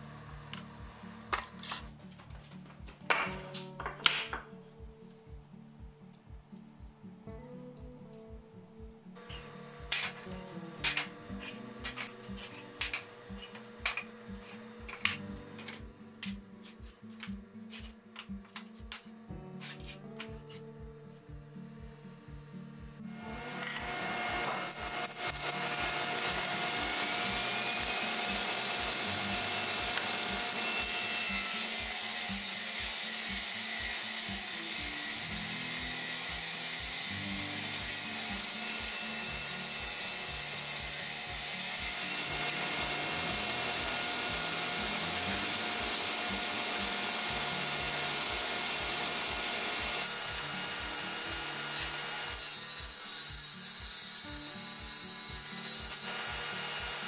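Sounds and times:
table saw cutting wood: 9.2s - 18.0s, 23.0s - 57.0s.

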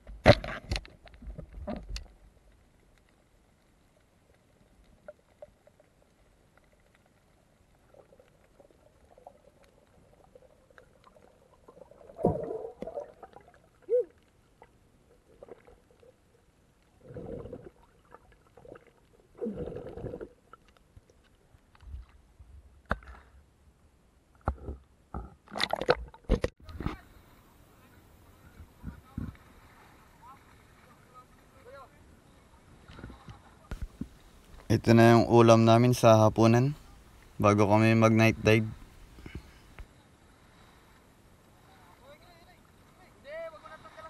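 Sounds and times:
underwater gurgling: 4.0s - 21.1s.

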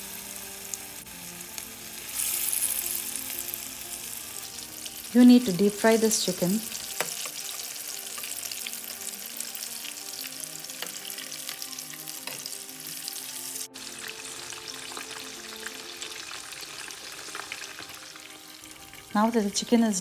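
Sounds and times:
chicken deep frying in oil: 12.7s - 20.0s.

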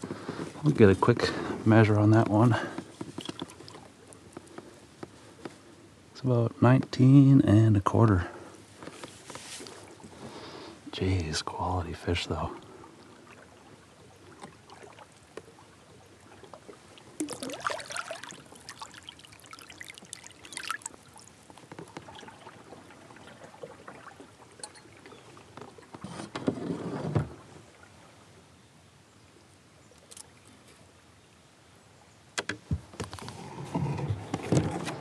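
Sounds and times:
water splashing against kayak: 0.0s - 5.8s, 12.0s - 28.3s
river water flowing: 0.0s - 6.2s, 8.2s - 26.2s, 26.8s - 32.0s.

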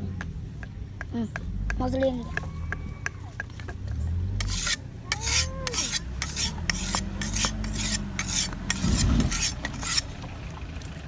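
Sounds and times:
whetstone scraping on blade: 4.4s - 10.1s.

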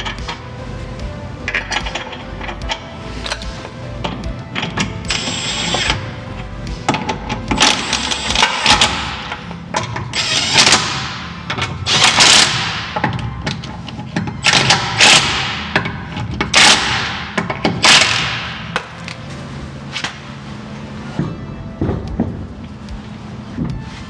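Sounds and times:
power ratchet bursts: 5.1s - 6.1s, 7.5s - 9.4s, 10.1s - 13.0s, 16.5s - 18.5s.

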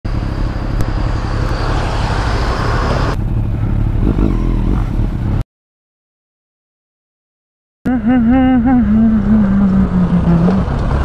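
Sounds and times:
wind and road hiss: 0.1s - 5.3s
motorcycle engine running: 3.1s - 5.4s.

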